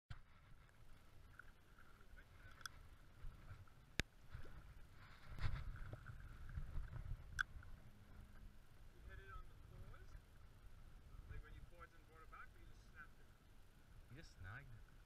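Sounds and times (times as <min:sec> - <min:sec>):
wind rumble on microphone: 0:01.9 - 0:12.0.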